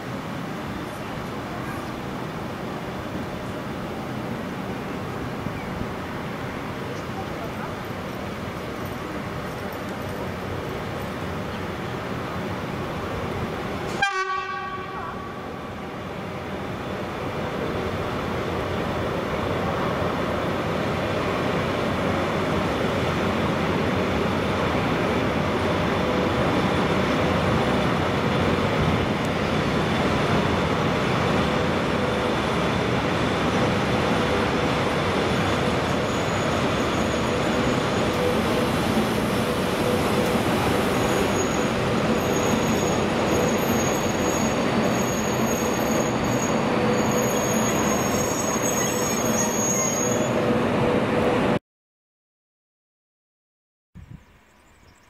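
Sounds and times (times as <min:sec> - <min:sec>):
train wheels rumbling on rails: 0:00.0 - 0:51.6
high wheel squeal: 0:35.3 - 0:38.4, 0:39.9 - 0:50.6.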